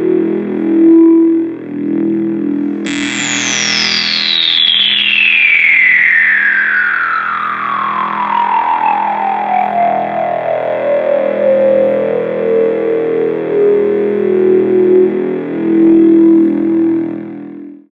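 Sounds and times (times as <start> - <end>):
synthesizer brass note with filter sweep: 2.8 - 8.2.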